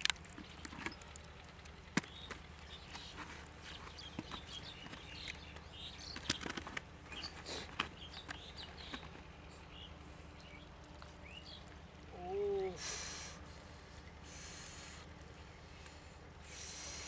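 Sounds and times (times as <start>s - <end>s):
fish flapping in plastic bucket: 6.1s - 6.9s.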